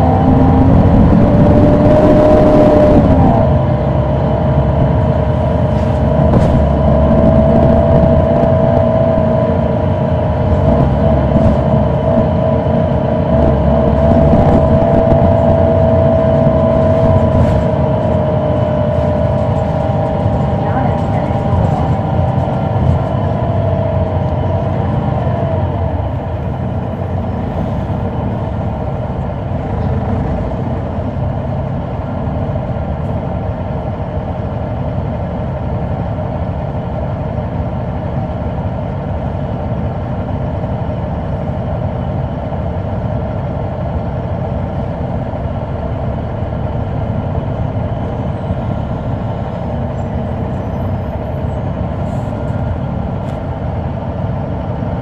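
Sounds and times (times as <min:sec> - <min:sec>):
high whine shifting pitch: 0:00.0 - 0:27.1
bus diesel engine drone: 0:00.0 - 0:55.0.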